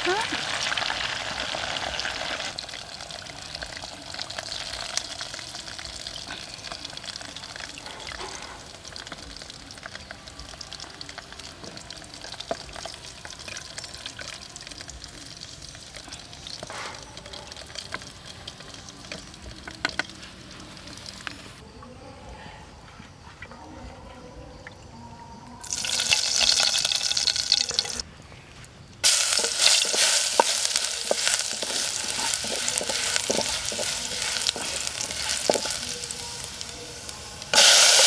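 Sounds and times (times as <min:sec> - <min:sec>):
meat sizzling in hot oil: 0:00.0 - 0:21.5, 0:25.6 - 0:28.0, 0:29.0 - 0:38.0.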